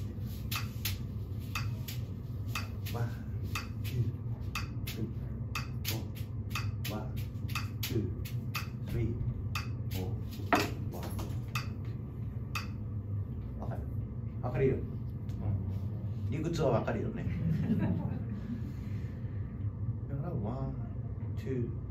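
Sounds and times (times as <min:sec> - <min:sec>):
metronome clicks: 0:05.6 - 0:05.9, 0:06.5 - 0:07.9, 0:09.6 - 0:09.8, 0:11.6 - 0:11.8, 0:12.6 - 0:12.8.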